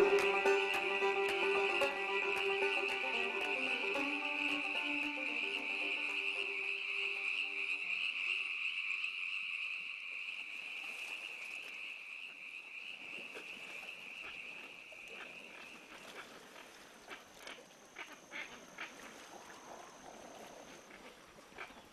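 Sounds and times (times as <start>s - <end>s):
high insect trill: 0.0s - 13.1s.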